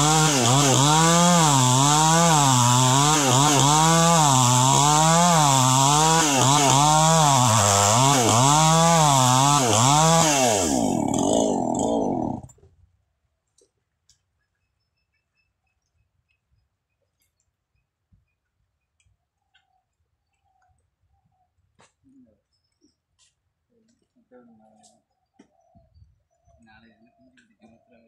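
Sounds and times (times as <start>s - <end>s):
chainsaw cutting log: 0.0s - 12.7s.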